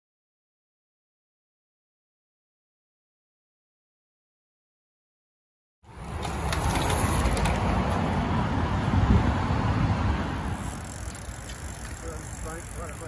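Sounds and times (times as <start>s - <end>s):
bicycle tyre noise: 5.8s - 13.0s
wind rumble on microphone: 6.5s - 10.9s
freewheel ticking: 10.5s - 13.0s.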